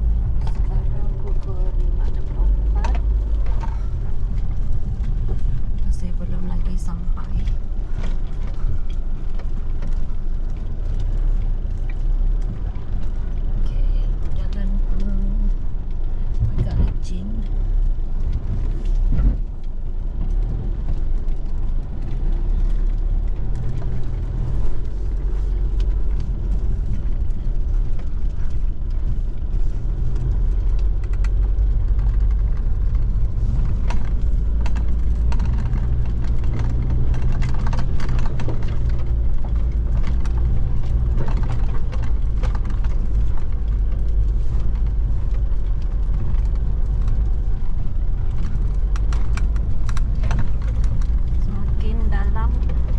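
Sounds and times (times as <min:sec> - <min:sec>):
vehicle engine and road rumble: 0:00.0 - 0:52.9
knocks and rattles: 0:25.7 - 0:52.9.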